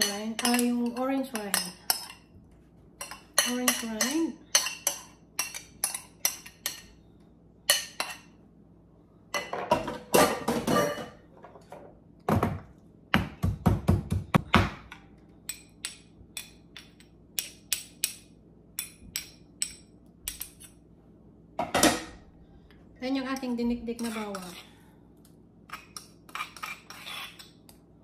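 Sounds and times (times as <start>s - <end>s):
metal spoon clinking on ceramic: 0.0s - 2.2s, 3.0s - 6.9s.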